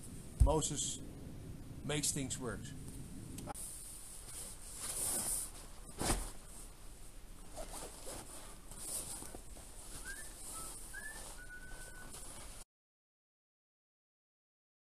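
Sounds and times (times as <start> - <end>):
zipper rasping: 7.4 - 9.4.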